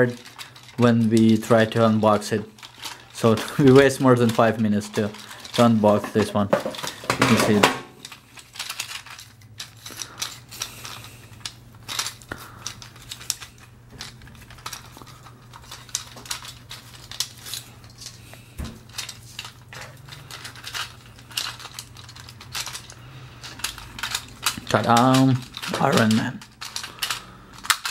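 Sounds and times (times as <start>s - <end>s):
plastic toy figures clicking: 18.9s - 27.9s.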